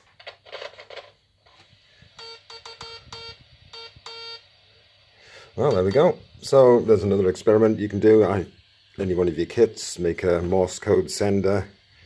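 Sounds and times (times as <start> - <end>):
morse code beeps: 2.2 - 4.4.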